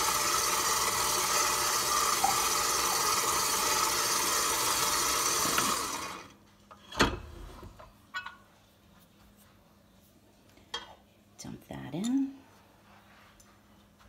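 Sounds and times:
stand mixer motor running: 0:00.0 - 0:06.3.

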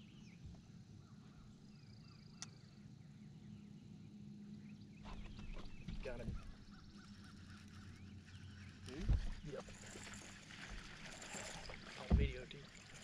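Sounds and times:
faint bird chirps: 0:00.0 - 0:10.0.

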